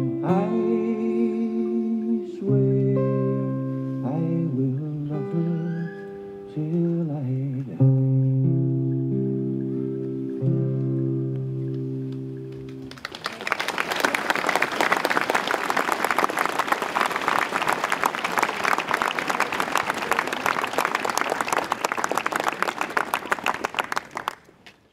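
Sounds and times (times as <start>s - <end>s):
crowd applauding: 12.5s - 24.7s.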